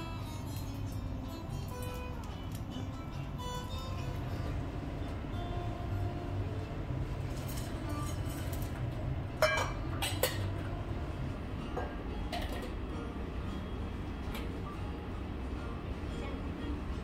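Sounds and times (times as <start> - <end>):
low room hum: 0.0 - 17.0
metal bowls clinking: 9.4 - 10.6, 11.7 - 12.8.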